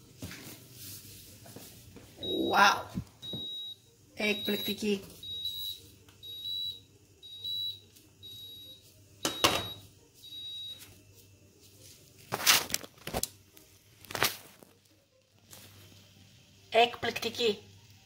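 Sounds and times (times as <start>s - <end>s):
cooking timer alarm beeping: 2.2s - 11.0s.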